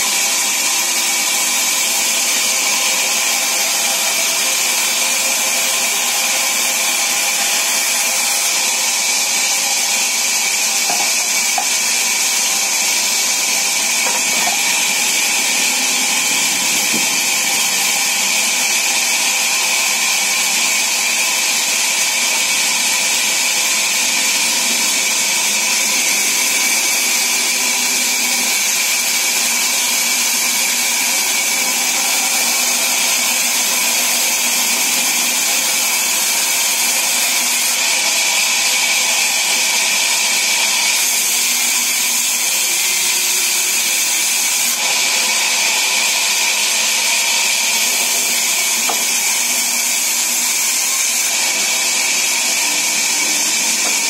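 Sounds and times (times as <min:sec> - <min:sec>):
band saw cutting timber: 0:00.0 - 0:54.0.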